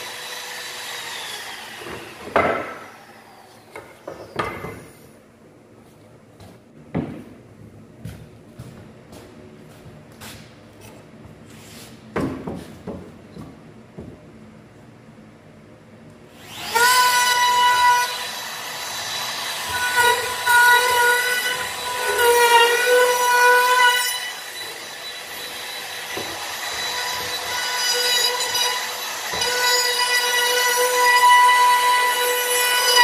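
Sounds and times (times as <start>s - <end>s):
wood trimmer motor whining: 16.4s - 31.0s.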